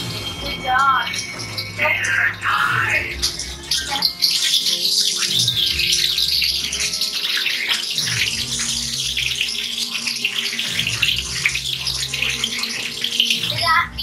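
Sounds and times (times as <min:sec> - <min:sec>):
food sizzling in a skillet: 0:03.3 - 0:14.0.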